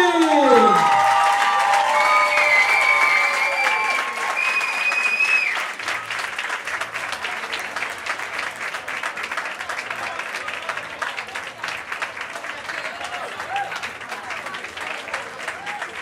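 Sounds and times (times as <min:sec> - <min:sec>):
high-pitched cheering shrieks: 0:00.0 - 0:05.6
crowd clapping: 0:00.0 - 0:16.0.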